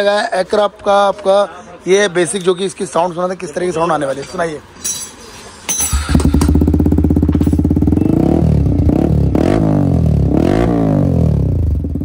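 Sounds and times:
motorcycle engine idling: 5.9 - 9.4, 11.5 - 12.0
engine revving in throttle blips: 5.9 - 12.0.

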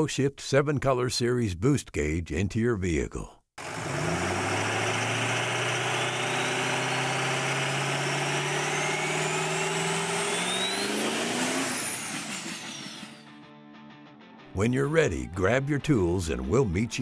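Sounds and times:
car engine revving up: 3.6 - 13.2.

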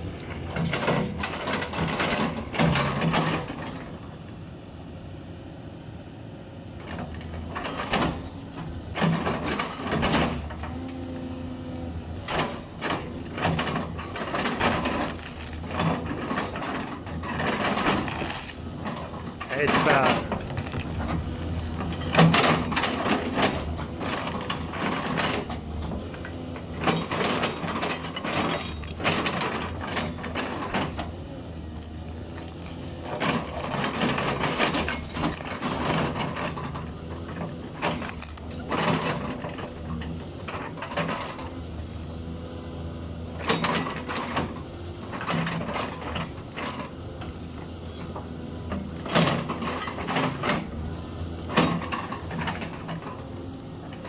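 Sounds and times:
excavator diesel engine: 0.0 - 54.0
roots cracking and knocking: 19.8 - 22.0.

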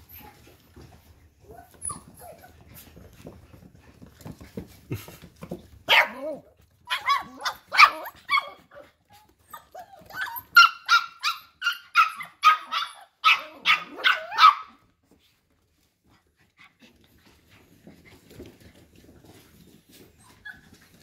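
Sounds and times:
puppies barking: 5.8 - 8.8, 9.6 - 14.8.

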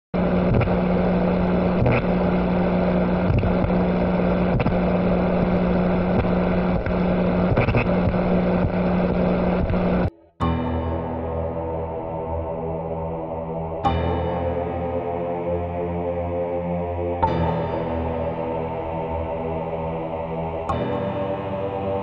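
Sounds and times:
loud steady droning hum: 0.2 - 10.1, 10.9 - 22.0
ambient music: 10.1 - 22.0.

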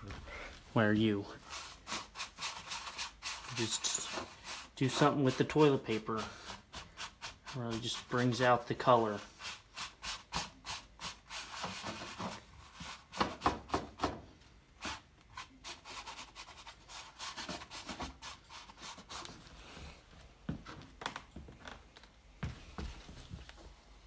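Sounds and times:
paper scratching on canvas: 1.4 - 13.3, 14.8 - 19.4.

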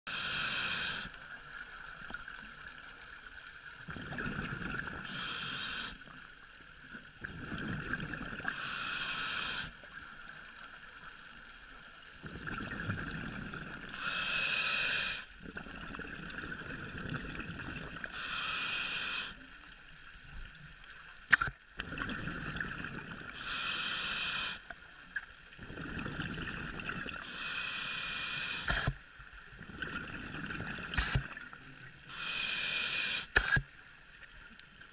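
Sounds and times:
regulator inhalation hiss: 0.1 - 1.2, 5.0 - 6.1, 8.4 - 9.8, 13.9 - 15.3, 18.1 - 19.4, 23.3 - 24.7, 27.2 - 29.0, 32.1 - 33.7
exhaled air bubbling: 3.9 - 5.9, 7.2 - 9.6, 12.2 - 18.3, 21.3 - 24.6, 25.5 - 33.7.

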